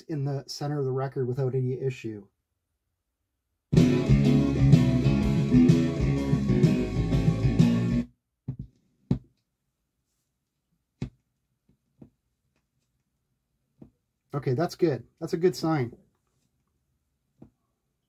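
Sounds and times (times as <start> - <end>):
guitar music from vinyl record: 3.7 - 8.1.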